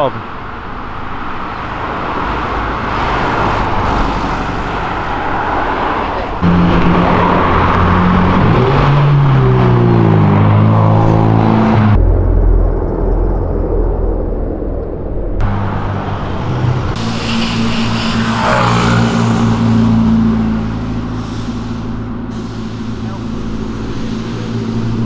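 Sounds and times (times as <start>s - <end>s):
cars driving past: 0.0s - 12.0s, 15.4s - 25.0s
engine accelerating: 6.4s - 25.0s
engine running steadily: 15.4s - 25.0s.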